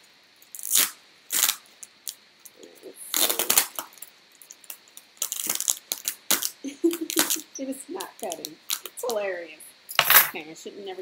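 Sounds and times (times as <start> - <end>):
plastic wrap crackling: 0.4 - 9.3
keys clinking and scraping: 9.9 - 10.4.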